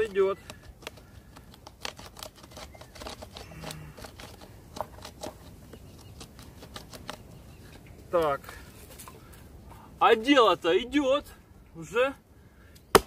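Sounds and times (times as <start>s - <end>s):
bow drill spindle scraping and clicking: 0.0s - 7.8s.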